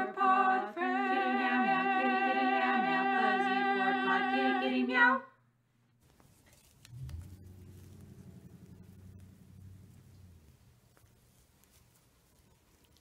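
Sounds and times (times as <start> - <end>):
a cappella female vocals in harmony: 0.0 - 5.3.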